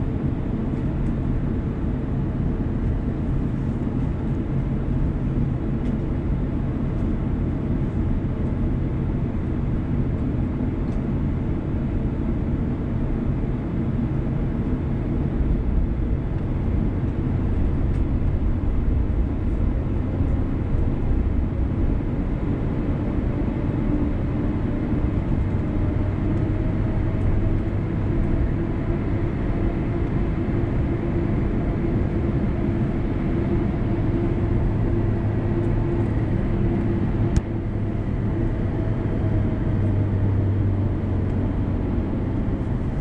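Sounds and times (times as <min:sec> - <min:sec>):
low rumble of engines and wheels: 0:00.0 - 0:43.0
low hum: 0:14.0 - 0:43.0.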